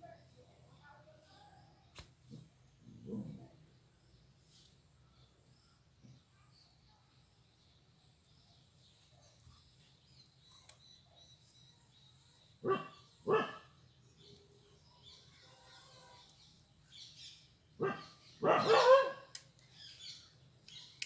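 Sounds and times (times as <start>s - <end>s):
dog barking: 12.6s - 13.8s, 17.8s - 19.3s.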